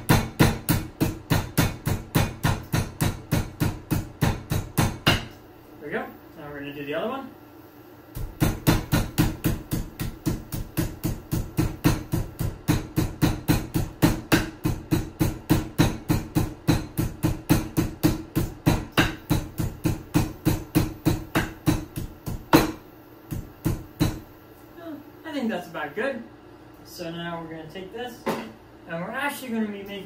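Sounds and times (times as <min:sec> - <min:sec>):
rolling pin pounding meat: 0:00.0 - 0:05.4, 0:08.1 - 0:24.3.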